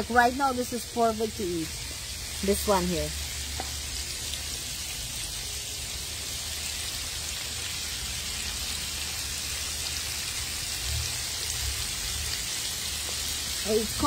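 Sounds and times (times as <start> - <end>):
chicken sizzling in hot oil: 0.0 - 14.0.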